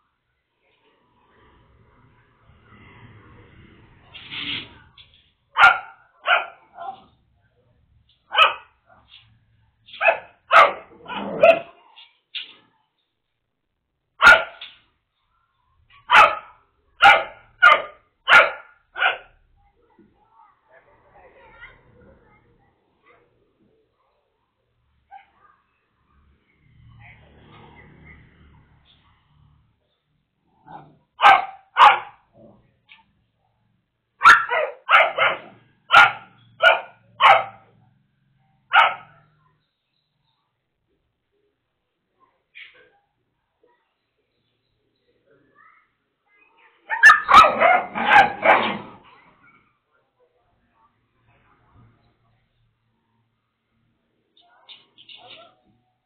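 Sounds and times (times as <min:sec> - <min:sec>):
dog barking: 0:05.6 - 0:07.2, 0:08.3 - 0:09.2, 0:09.9 - 0:11.8, 0:14.2 - 0:14.8, 0:16.0 - 0:19.4, 0:25.1 - 0:25.6, 0:30.6 - 0:33.1, 0:34.2 - 0:37.8, 0:38.6 - 0:39.4, 0:46.9 - 0:49.5.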